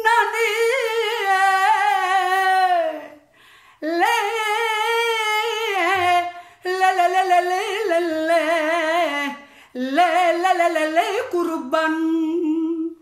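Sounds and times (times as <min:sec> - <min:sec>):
woman singing unaccompanied: 0:00.0 - 0:13.0
breath: 0:03.2 - 0:03.8, 0:06.3 - 0:06.6, 0:09.4 - 0:09.8.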